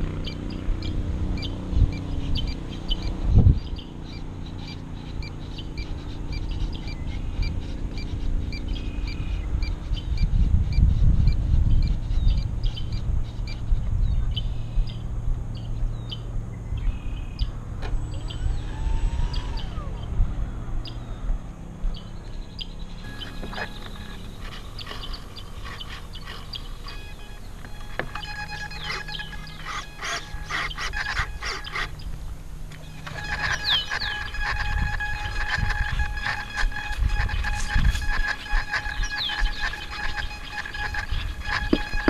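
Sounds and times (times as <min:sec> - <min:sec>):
birds chirping: 0:00.0 - 0:42.0
sliding bird calls: 0:23.0 - 0:42.0.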